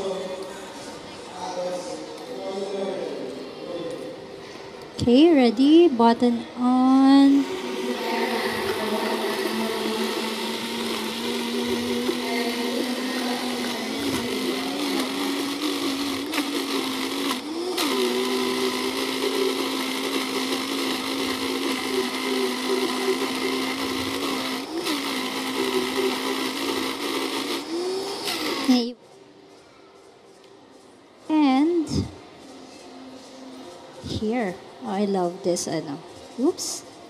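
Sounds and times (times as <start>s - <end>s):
blender running: 7.3s - 28.9s.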